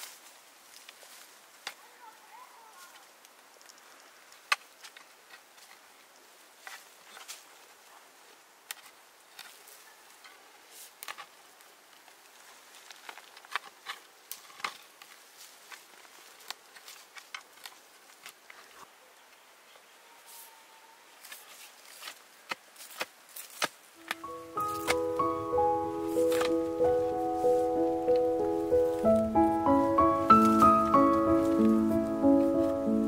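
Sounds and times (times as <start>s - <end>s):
faint steady hiss: 0.0s - 33.0s.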